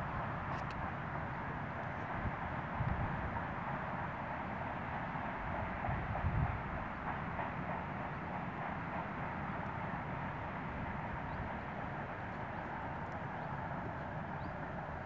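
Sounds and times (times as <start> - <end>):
wind on microphone: 5.9 - 6.8.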